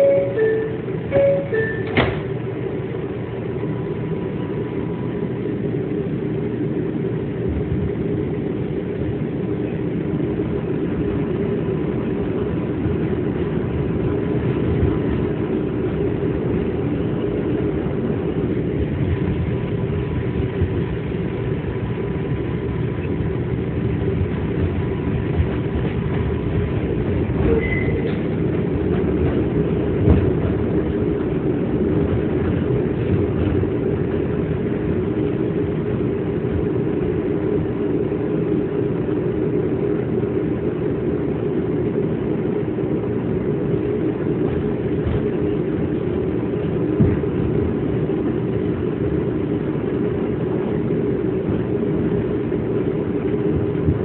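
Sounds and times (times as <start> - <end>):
train motor hum: 0.0 - 54.0
train wheels rumbling on rails: 0.0 - 54.0.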